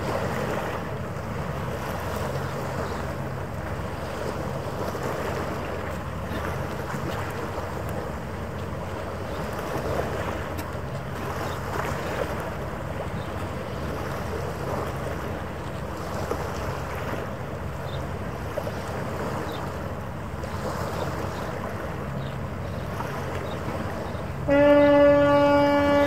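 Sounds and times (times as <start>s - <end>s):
harbour water: 0.0s - 26.0s
horn blast: 24.4s - 26.0s.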